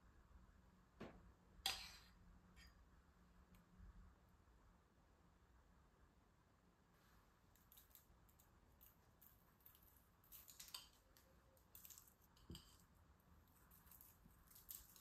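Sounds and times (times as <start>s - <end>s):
crumbs crackling on paper: 13.4s - 15.0s.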